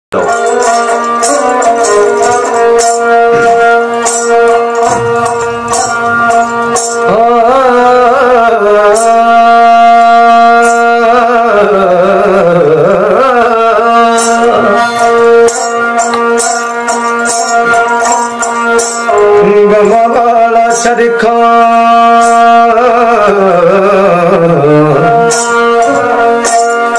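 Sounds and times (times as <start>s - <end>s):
bowed string instrument melody: 0.1s - 26.9s
steady drone: 0.2s - 8.2s
short percussive taps: 0.3s - 7.1s, 14.4s - 19.2s.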